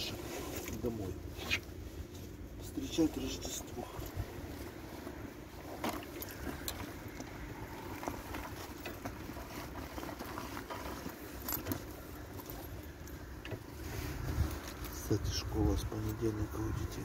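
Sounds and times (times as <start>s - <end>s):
bicycle clicks and rattles: 5.7s - 13.7s.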